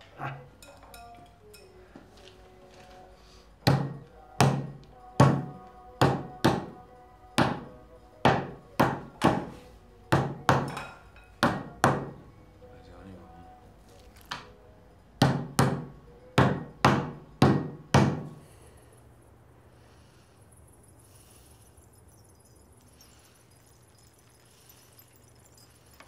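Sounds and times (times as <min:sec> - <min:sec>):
mallet pounding meat: 0:11.4 - 0:12.2.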